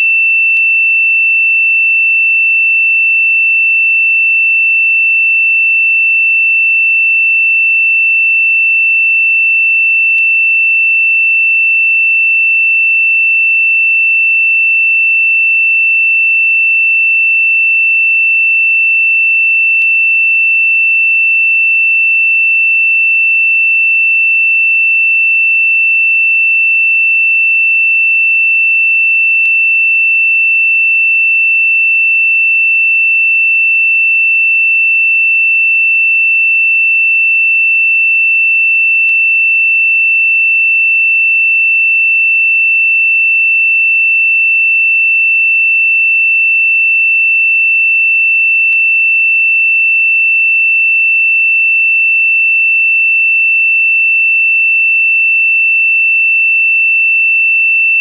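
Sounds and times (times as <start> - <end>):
high-pitched sine tone: 56.9 - 58.0.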